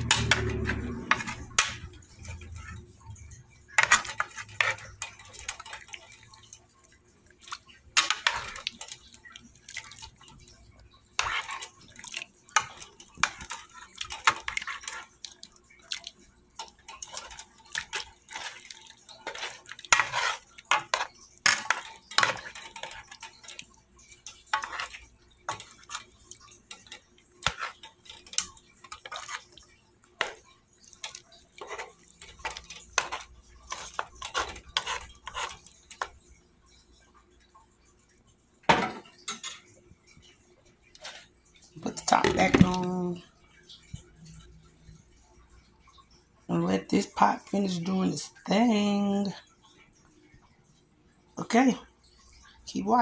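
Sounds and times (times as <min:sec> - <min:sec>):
metal spoon scraping pot: 0:00.0 - 0:06.5, 0:07.6 - 0:15.3, 0:16.6 - 0:36.2
liquid sloshing: 0:00.0 - 0:46.6.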